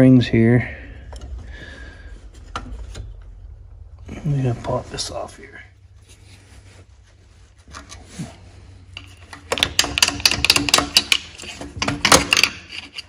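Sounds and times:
pliers clicking and rattling: 9.0s - 13.0s.

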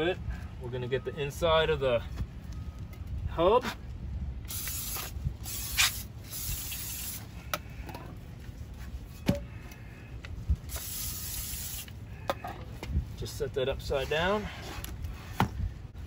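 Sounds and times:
aerosol spray hiss: 10.7s - 11.9s.

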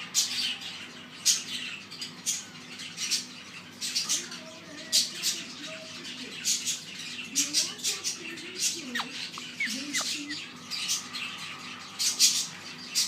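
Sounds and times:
parrot squawking: 6.4s - 11.1s.

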